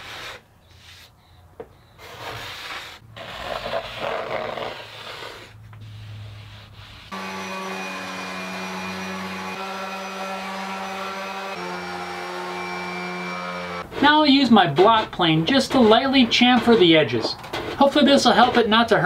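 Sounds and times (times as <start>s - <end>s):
steel scraper scraping wood: 4.9s - 14.2s
orbital sander running: 7.1s - 13.8s.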